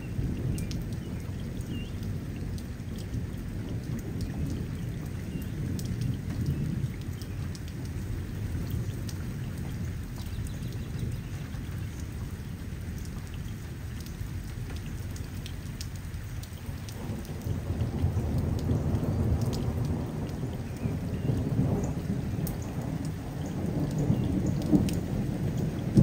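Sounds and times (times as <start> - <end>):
raindrop ticks: 0.0 - 26.0
steady rain: 0.0 - 26.0
thunder rumbling: 16.6 - 26.0.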